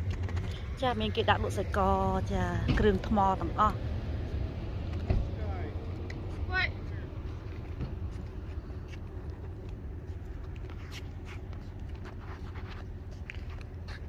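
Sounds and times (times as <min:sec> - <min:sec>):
light ticks and scuffs: 0:05.9 - 0:14.0.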